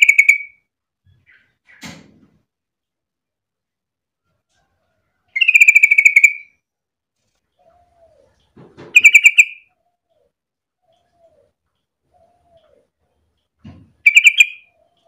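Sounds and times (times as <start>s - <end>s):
bird bubbling chatter: 8.9s - 9.7s, 14.0s - 14.7s.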